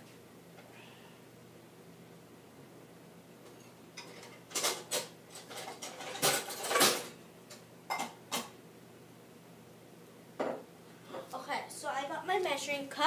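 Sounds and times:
kitchenware clattering: 3.5s - 7.2s, 7.9s - 8.5s.

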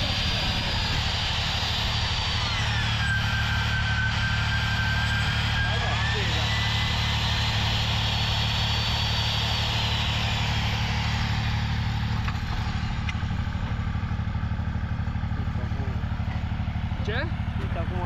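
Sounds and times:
engine idling: 0.0s - 18.0s
high whine falling in pitch: 0.0s - 18.0s.

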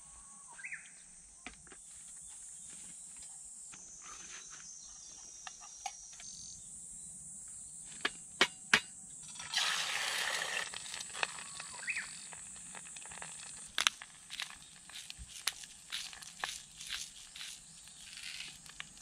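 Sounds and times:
insects droning: 0.0s - 19.0s
hiss and bubbling broth: 9.2s - 19.0s.

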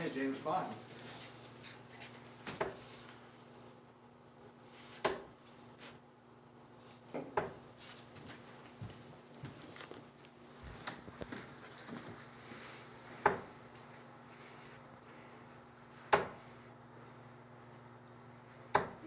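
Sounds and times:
darts striking a dartboard: 5.0s - 5.3s, 16.1s - 16.4s, 18.7s - 19.0s.

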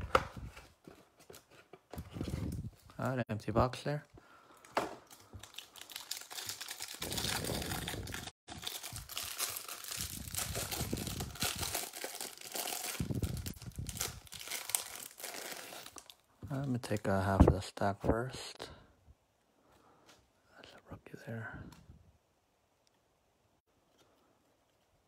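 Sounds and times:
plastic wrapper crinkling and tearing: 4.6s - 17.0s.

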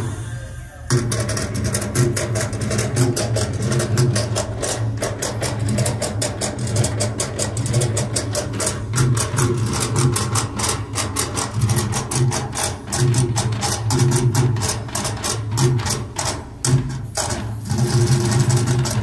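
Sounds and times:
steady low drone: 0.0s - 13.8s
fast even drumming: 0.9s - 19.0s.

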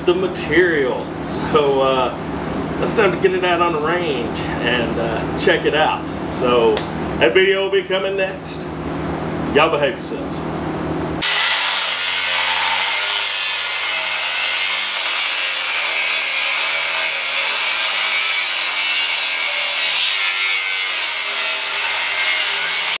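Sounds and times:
angle grinder grinding steel: 11.2s - 23.0s.

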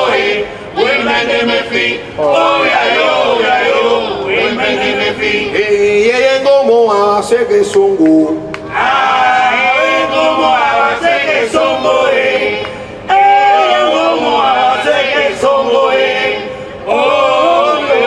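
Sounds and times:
men singing a chant: 0.0s - 6.2s, 8.7s - 18.0s.

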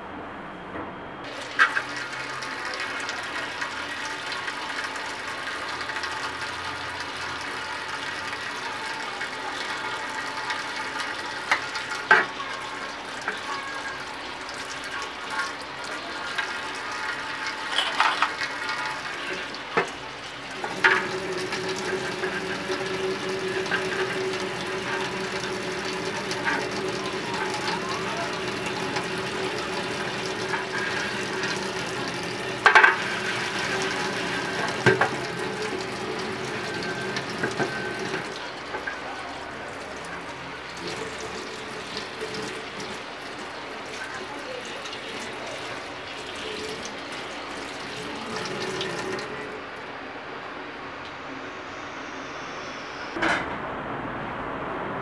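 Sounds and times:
tap water running into sink: 1.3s - 49.5s
pan knocking against sink: 32.6s - 33.3s.

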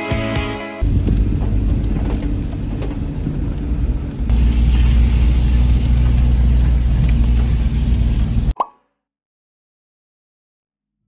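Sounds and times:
engine and tyre rumble: 0.8s - 8.6s
raindrops ticking on windscreen: 0.9s - 7.6s.

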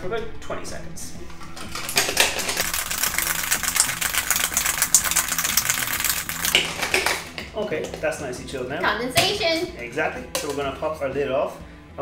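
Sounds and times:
ice rattling in cocktail shaker: 1.7s - 7.4s.

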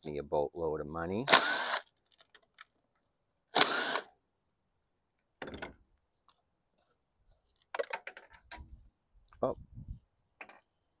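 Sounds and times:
cordless driver whining: 3.6s - 4.1s.

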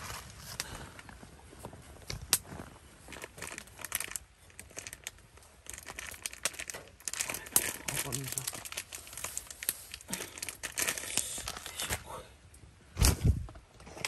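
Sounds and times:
plastic packaging crinkling: 2.3s - 12.0s.

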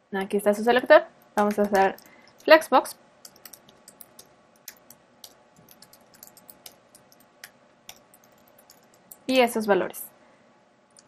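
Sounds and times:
keyboard typing: 1.2s - 2.6s, 3.2s - 9.3s.

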